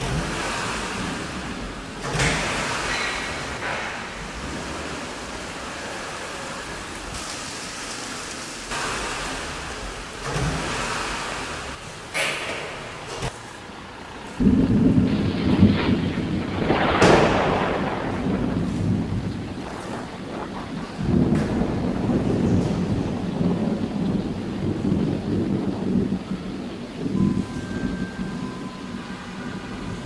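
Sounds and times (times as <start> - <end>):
thunder: 0.0 - 7.4, 14.2 - 30.0
heavy rain: 0.0 - 30.0.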